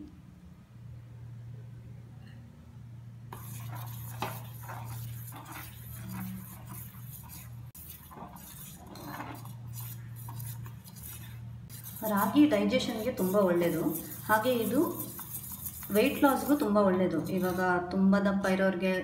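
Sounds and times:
spoon scraping steel pot: 3.3s - 17.8s.

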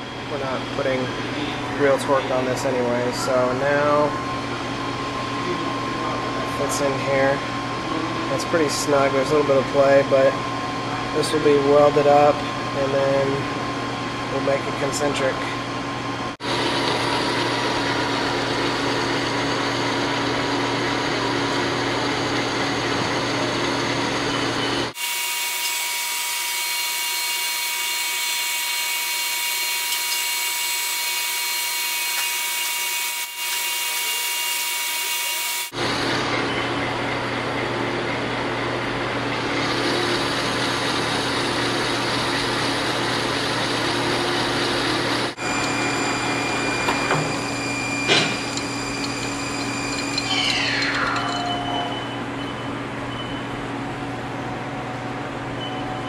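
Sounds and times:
metal lathe running: 16.4s - 53.1s
high-pitched whine: 20.4s - 37.5s, 44.0s - 55.0s.

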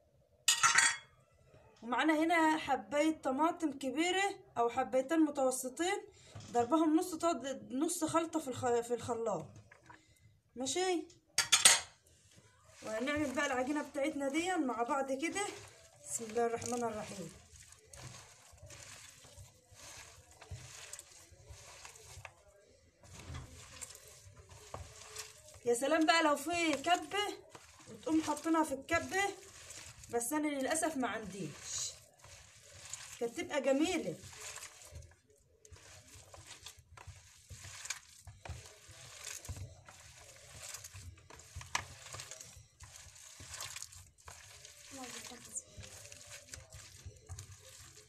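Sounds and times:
hands squelching meat filling: 12.7s - 48.0s.

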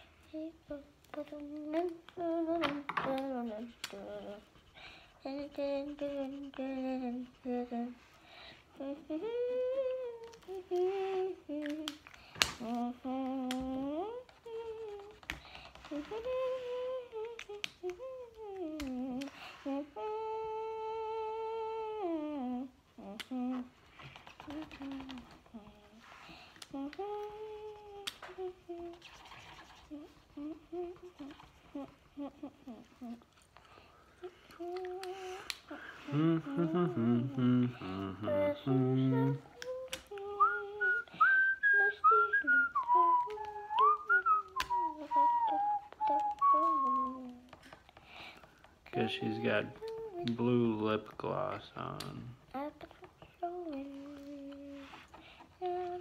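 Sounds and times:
child humming: 0.0s - 8.1s, 8.7s - 12.0s, 12.6s - 47.8s, 48.4s - 56.0s
man humming: 34.2s - 41.0s, 48.9s - 52.4s
man whistling a melody: 40.4s - 47.3s.

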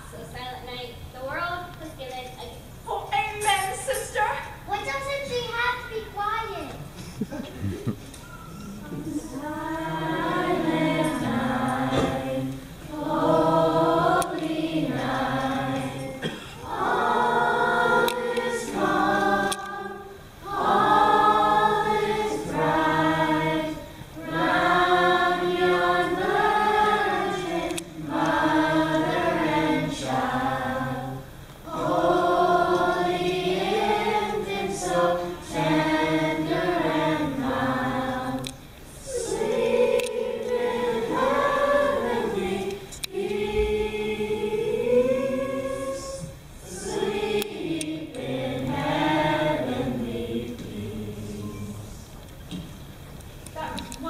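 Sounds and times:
choir singing: 8.8s - 52.2s.

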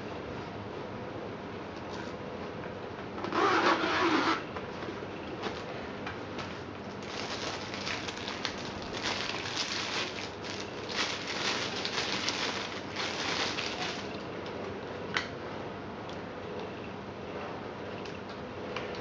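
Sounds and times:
plastic bag crinkling: 7.0s - 14.2s.

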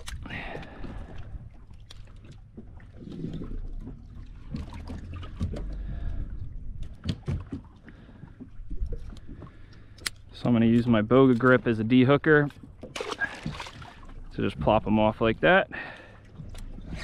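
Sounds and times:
boat deck low rumble: 0.0s - 17.0s
knocks and clicks of gear: 6.8s - 7.8s.

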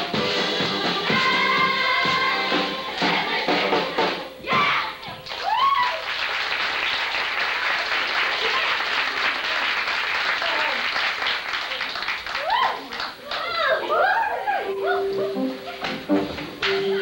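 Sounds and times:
dance music: 0.0s - 5.0s, 14.6s - 17.0s
audience applauding: 5.2s - 14.2s.

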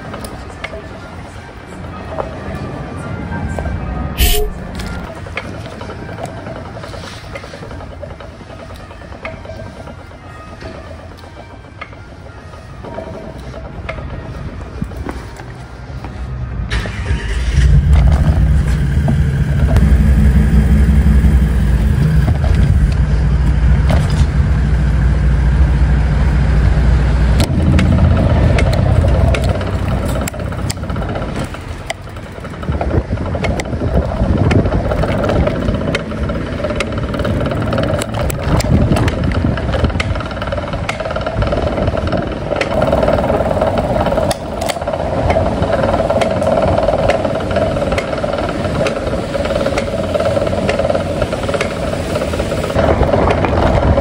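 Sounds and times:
bike clicks and rattles: 4.2s - 15.6s, 22.1s - 24.6s, 27.4s - 54.0s
bicycle rumbling over brick paving: 17.6s - 54.0s.

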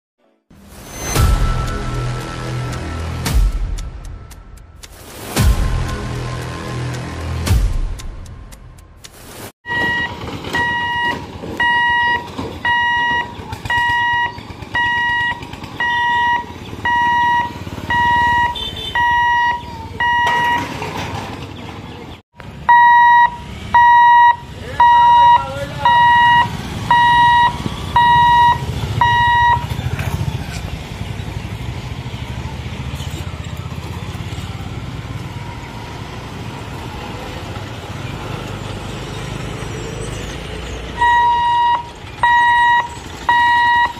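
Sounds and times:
level crossing electronic beeps: 9.7s - 20.7s, 22.7s - 29.7s, 41.0s - 43.9s
motorbikes and traffic rumble: 9.7s - 43.9s.

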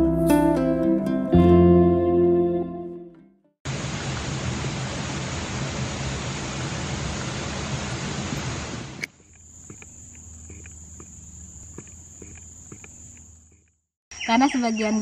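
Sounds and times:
rushing water: 3.7s - 9.1s
faint ticks: 9.0s - 13.8s.

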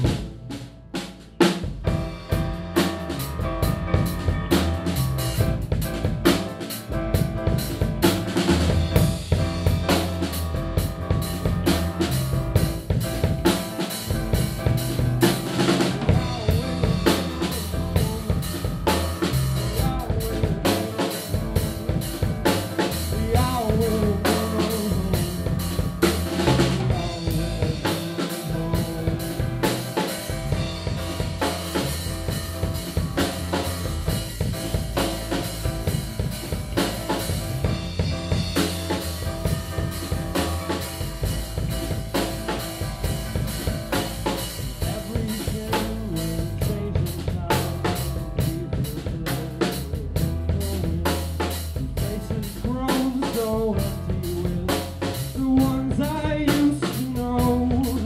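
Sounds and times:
drum kit beat: 0.0s - 58.0s
live band playing: 0.0s - 58.0s.

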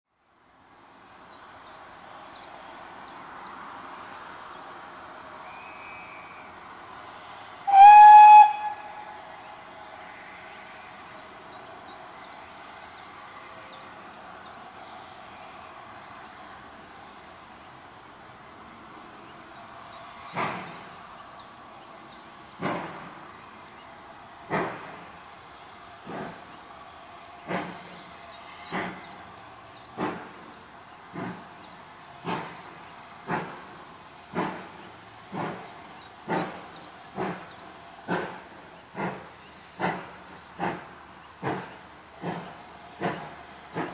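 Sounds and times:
steam locomotive whistle: 7.6s - 9.2s
steam locomotive chuffing: 7.6s - 9.4s, 20.2s - 25.4s, 26.0s - 43.9s.

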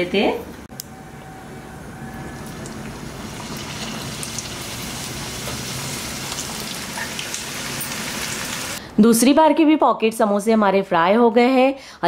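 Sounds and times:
oil sizzling and crackling: 2.4s - 8.8s.

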